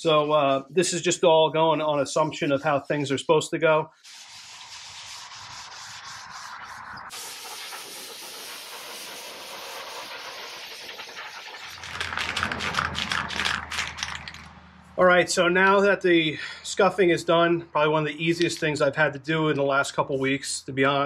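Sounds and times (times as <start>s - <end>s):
abrasive pad scrubbing wood: 4.0s - 13.8s.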